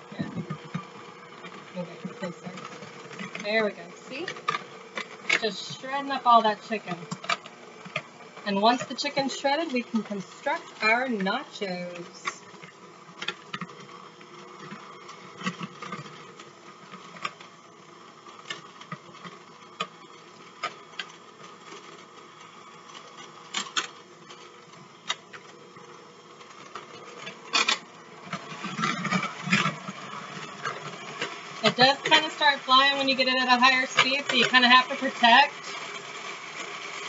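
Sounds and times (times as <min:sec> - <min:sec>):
electric hand mixer running: 0:00.0 - 0:23.4, 0:24.1 - 0:37.0.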